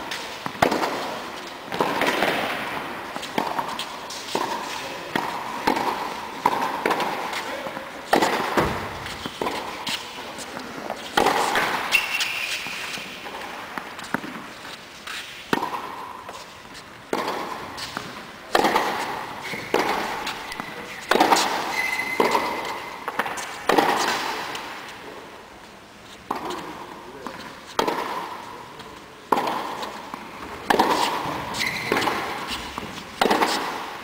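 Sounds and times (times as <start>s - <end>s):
tennis ball bouncing: 0.1s - 7.4s, 8.1s - 14.5s, 15.1s - 16.4s, 17.1s - 24.7s, 27.3s - 28.4s, 29.3s - 34.0s
racket striking tennis ball: 0.1s - 14.5s, 15.1s - 16.5s, 17.1s - 24.8s, 27.4s - 28.5s, 29.3s - 34.0s
shoe squeaks: 11.8s - 13.2s, 19.4s - 23.0s, 31.5s - 32.8s.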